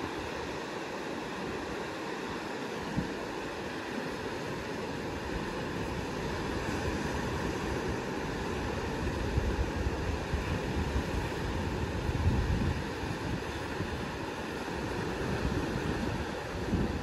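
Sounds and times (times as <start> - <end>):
small sea waves washing ashore: 0.0 - 17.0
wind buffeting microphone: 5.7 - 17.0.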